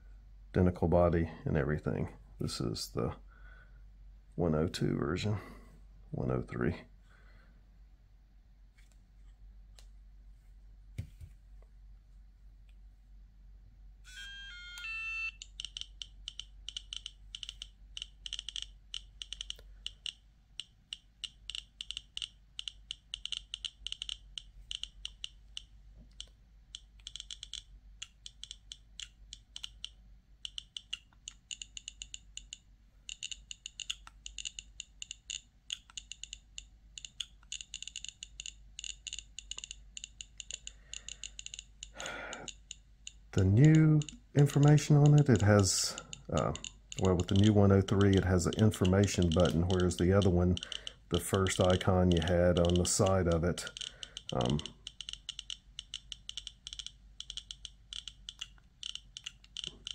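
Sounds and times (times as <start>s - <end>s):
detector speaker clicking: 14.8s - 59.9s.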